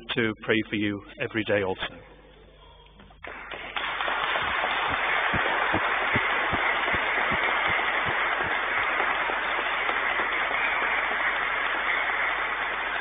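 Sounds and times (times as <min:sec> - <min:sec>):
crowd applauding: 0:03.2 - 0:13.0.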